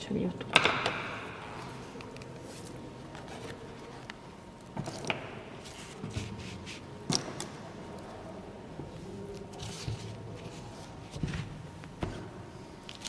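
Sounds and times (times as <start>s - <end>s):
low steady background noise: 0.0s - 13.0s
hands handling paper and objects: 9.0s - 11.9s, 12.8s - 13.0s.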